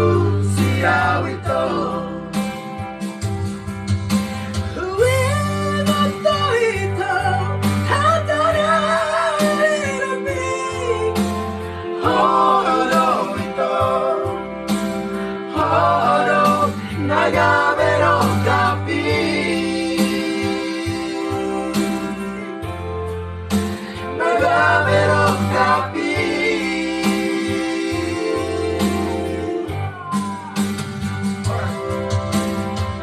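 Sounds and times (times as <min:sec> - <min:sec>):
men singing together: 0:00.0 - 0:02.6, 0:12.0 - 0:14.6, 0:15.5 - 0:22.4, 0:24.0 - 0:29.8
electronic keyboard chords: 0:00.0 - 0:33.0.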